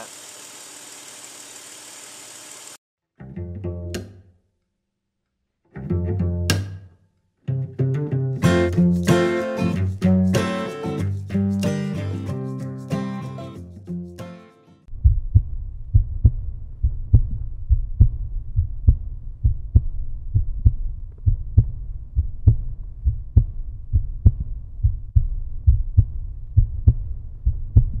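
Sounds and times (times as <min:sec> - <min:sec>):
continuous low rumble: 0:14.9 - 0:28.0
deep bass beat thumps: 0:14.9 - 0:28.0.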